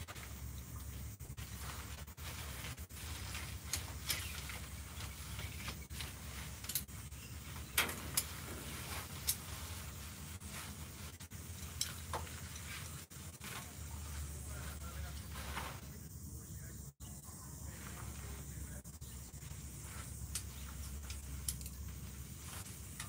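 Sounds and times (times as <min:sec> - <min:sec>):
fabric rustling: 0:01.4 - 0:06.7, 0:07.4 - 0:13.8.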